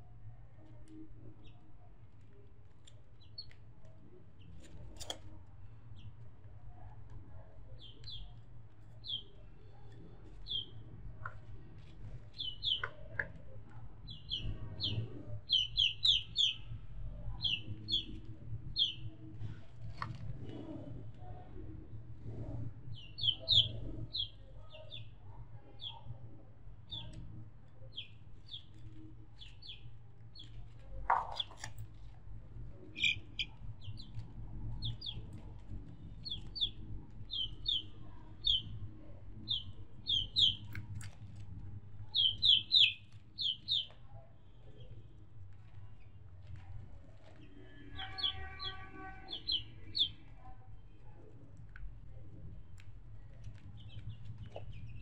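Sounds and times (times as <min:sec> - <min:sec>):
low steady rumble: 0:00.0 - 0:55.0
small birds chirping: 0:00.6 - 0:06.9, 0:07.6 - 0:55.0.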